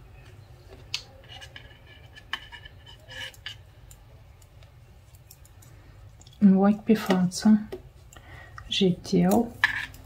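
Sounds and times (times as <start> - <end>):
low background hum: 0.0 - 10.0
knitting needles clicking: 3.3 - 6.4.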